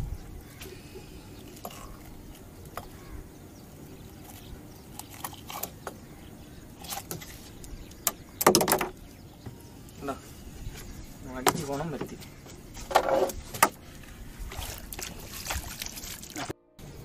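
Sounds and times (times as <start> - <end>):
loud rattling knocks: 8.0 - 9.0.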